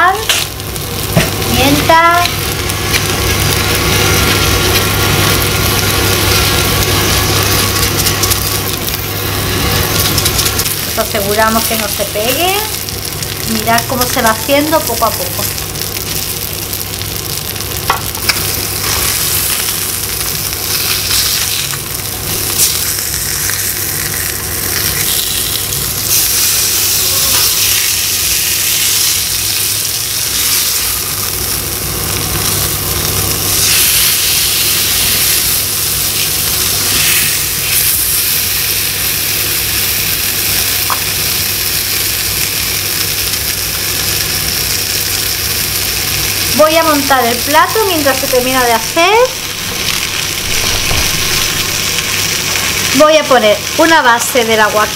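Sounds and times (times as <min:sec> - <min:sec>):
fish sizzling in a frying pan: 0:00.0 - 0:54.9
steady low hum: 0:00.0 - 0:54.9.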